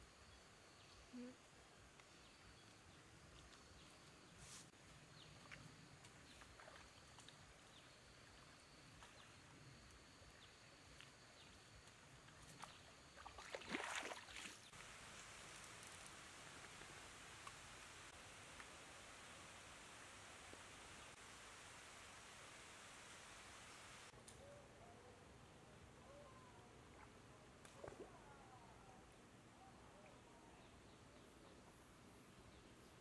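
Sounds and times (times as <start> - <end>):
faint outdoor ambience: 0.0 - 33.0
crackling rustle: 14.7 - 18.9.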